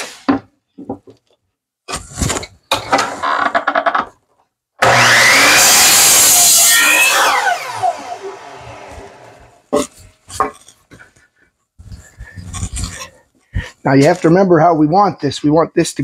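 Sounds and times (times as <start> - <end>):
saw blade whine winding down: 4.8 - 9.6
miter saw cutting wood: 4.8 - 9.8.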